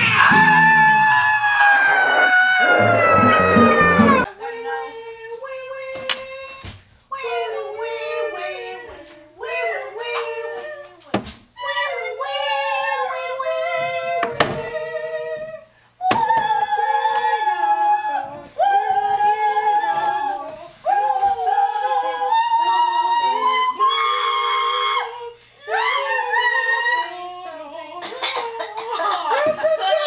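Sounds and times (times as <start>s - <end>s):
high voice singing held notes: 0.0s - 4.3s.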